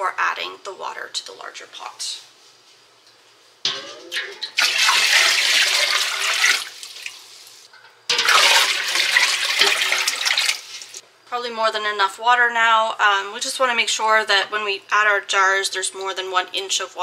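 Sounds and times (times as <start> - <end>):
water gushing into a pot: 4.1 - 11.0.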